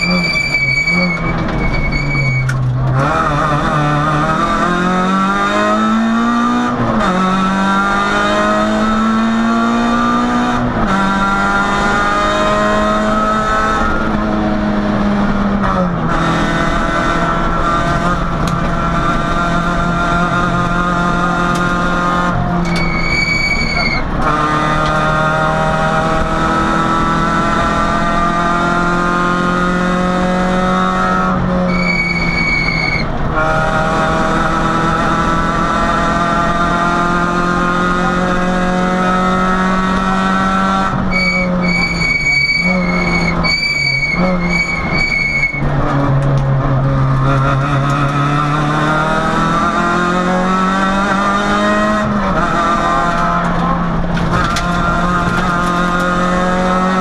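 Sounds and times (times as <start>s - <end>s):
high squeal: 0.0s - 2.6s, 22.6s - 24.1s, 31.7s - 33.1s, 41.1s - 45.7s
car engine revving hard: 2.6s - 57.0s.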